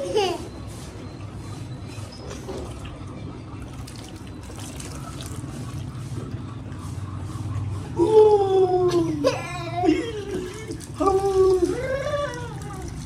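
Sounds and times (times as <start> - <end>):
water trickling and splashing: 3.6 - 6.4, 10.1 - 13.0.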